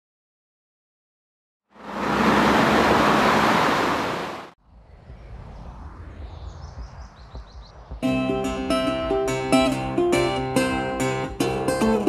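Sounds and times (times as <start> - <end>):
loud rushing noise: 1.8 - 9.9
low wind rumble: 1.8 - 10.6
high falling bird chirps: 4.7 - 8.4.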